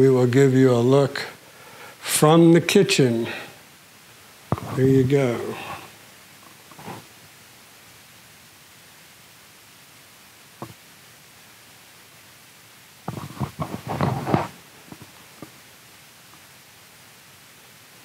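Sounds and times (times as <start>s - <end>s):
faint room hiss: 0.0s - 18.0s
knocks and rustling: 13.1s - 15.5s.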